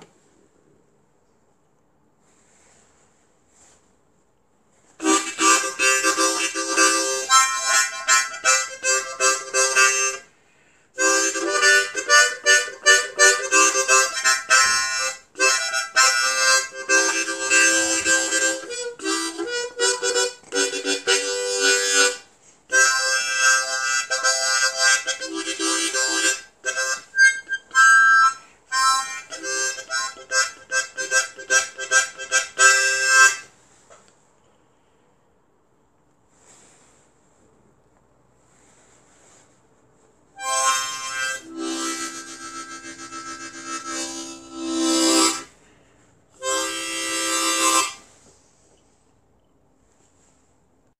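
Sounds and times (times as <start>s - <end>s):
harmonica phrases: 5.0s - 10.3s, 11.0s - 33.5s, 40.4s - 45.6s, 46.3s - 48.1s.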